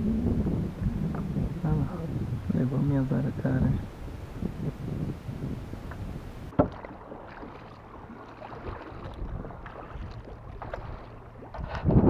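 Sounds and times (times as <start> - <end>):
paddle strokes dripping water: 3.8 - 12.0
small knocks: 5.9 - 7.6.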